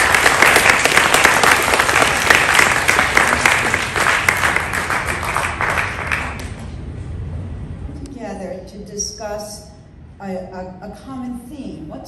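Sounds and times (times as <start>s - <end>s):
audience applauding: 0.0s - 6.7s.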